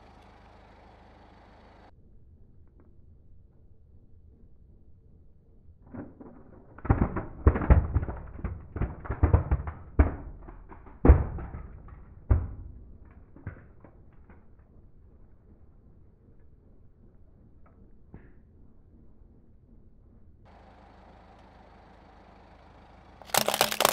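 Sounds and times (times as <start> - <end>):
plastic toys cracking under a tyre: 5.9 - 14.7, 23.2 - 23.9.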